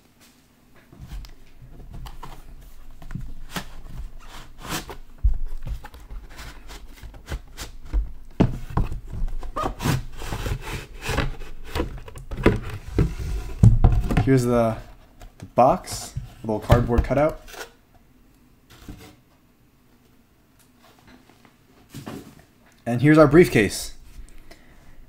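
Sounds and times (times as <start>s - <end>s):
knocks and thumps: 7.8s - 9.5s, 11.2s - 14.4s.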